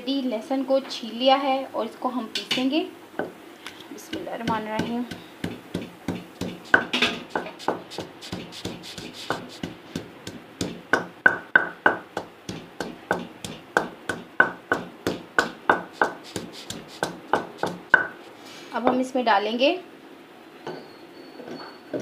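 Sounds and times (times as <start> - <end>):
pestle pounding in mortar: 4.1 - 18.2.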